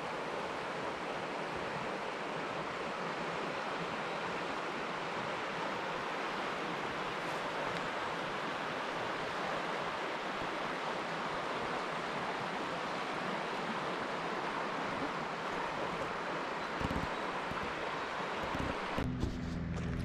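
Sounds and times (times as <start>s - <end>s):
river water flowing: 0.0s - 19.0s.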